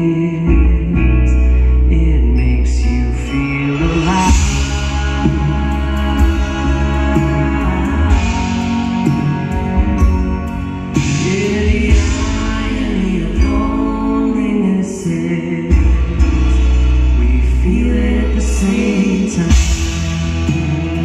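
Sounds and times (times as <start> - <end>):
band playing pop ballad: 0.0 - 21.0
person singing long notes: 2.0 - 10.2.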